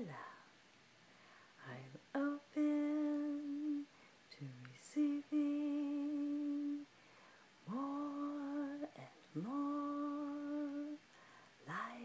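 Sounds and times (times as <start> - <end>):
woman humming held notes: 7.7 - 11.0, 11.7 - 12.0.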